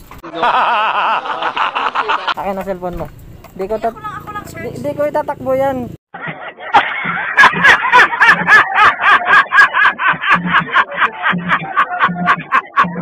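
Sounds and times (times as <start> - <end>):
man laughing loudly: 0.2 - 2.4, 6.2 - 13.0.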